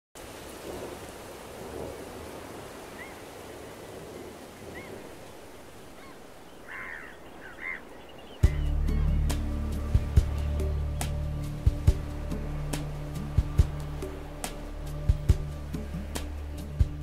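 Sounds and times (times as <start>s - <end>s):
short bird calls: 5.8s - 8.8s
music: 8.4s - 17.0s
sea water washing: 8.4s - 17.0s.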